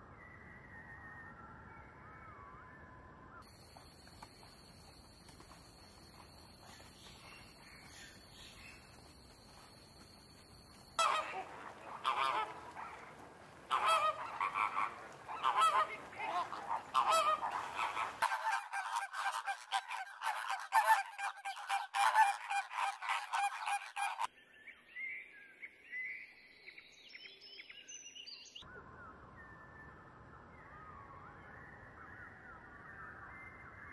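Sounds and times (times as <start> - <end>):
high chirping bird calls: 3.4 - 24.3
flamingos honking: 3.5 - 24.3.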